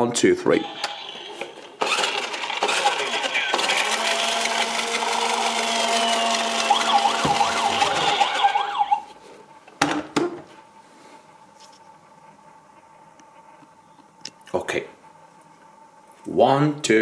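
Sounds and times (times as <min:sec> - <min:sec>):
toy engine whirring: 0:00.6 - 0:09.0
toy siren wail: 0:02.6 - 0:09.1.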